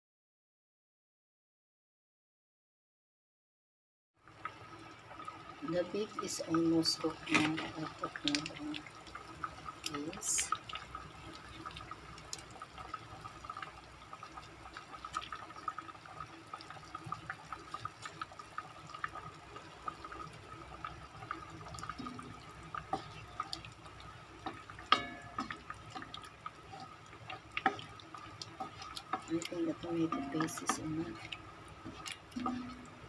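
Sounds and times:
broth simmering with bubbling pops: 4.2 - 33.0
wooden spatula stirring: 21.2 - 33.0
spatula knocking on pot: 24.5 - 25.8, 29.1 - 31.2.

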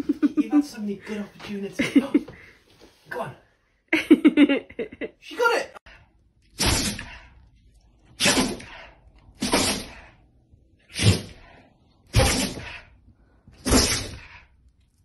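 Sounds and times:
dog sneezing: 6.6 - 7.1, 8.2 - 8.8, 9.4 - 10.0, 10.9 - 11.4, 12.1 - 12.7, 13.6 - 14.3.

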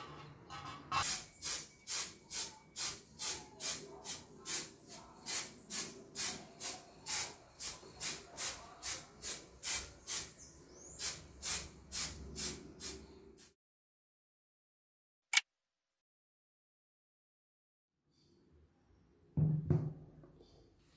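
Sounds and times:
spray paint can hissing: 1.0 - 13.5.

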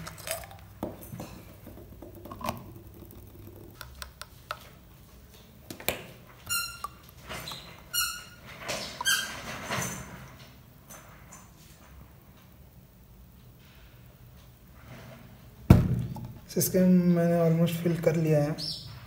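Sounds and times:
plastic rubbing squeaks: 6.3 - 9.9.

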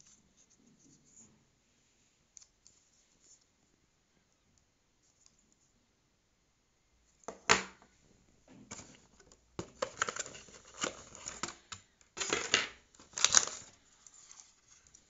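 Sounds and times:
plastic packaging crinkling: 9.7 - 15.0.

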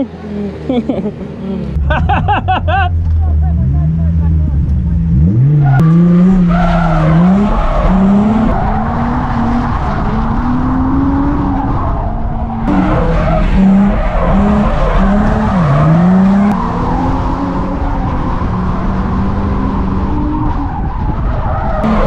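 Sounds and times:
tyres skidding and squealing: 0.0 - 22.0
car engine revving hard: 3.6 - 20.5.

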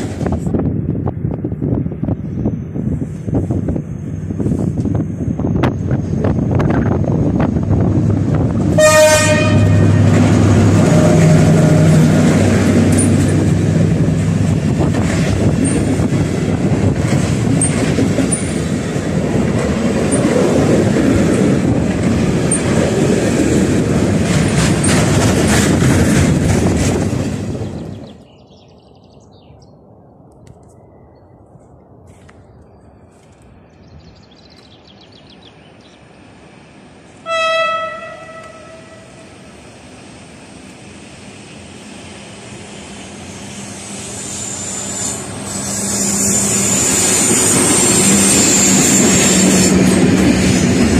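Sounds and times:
locomotive engine drone: 0.0 - 28.3, 35.6 - 50.9
locomotive horn blast: 8.7 - 13.2, 37.2 - 39.4
wagons clattering on rails: 14.8 - 16.3, 23.9 - 27.2.

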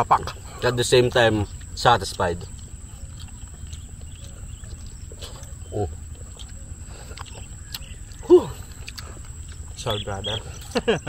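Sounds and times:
chewing crispy food: 0.1 - 11.0.

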